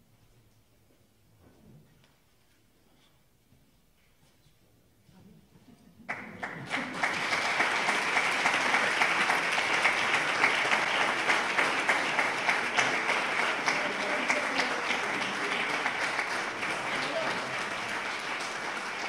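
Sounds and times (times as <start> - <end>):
audience applauding: 6.1 - 19.0.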